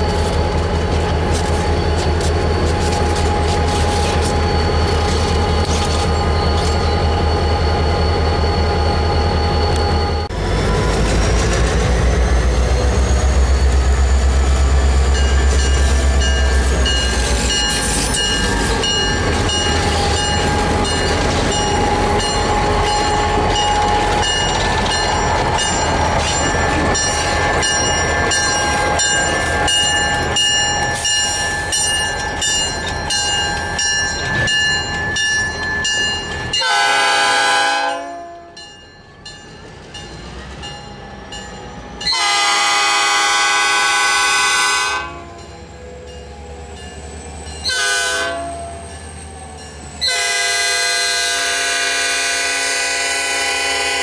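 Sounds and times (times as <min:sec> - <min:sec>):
train wheels clicking over rail joints: 0:00.0 - 0:07.5, 0:10.6 - 0:36.7
diesel locomotive engines running: 0:00.0 - 0:54.0
locomotive horn blasts: 0:36.6 - 0:38.6, 0:42.1 - 0:45.5, 0:47.6 - 0:48.8, 0:50.0 - 0:54.0.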